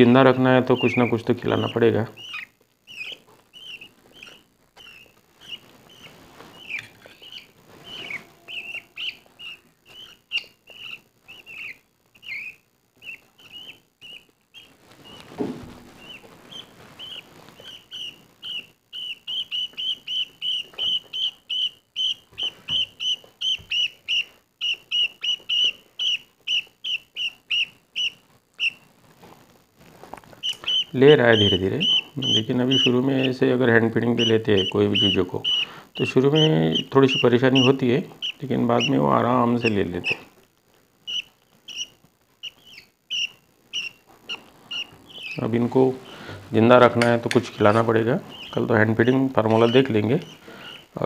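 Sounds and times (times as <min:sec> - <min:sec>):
budgerigar chicks begging chirps: 0:00.0 - 0:15.4, 0:16.0 - 0:28.9, 0:30.4 - 0:40.3, 0:41.0 - 0:51.0.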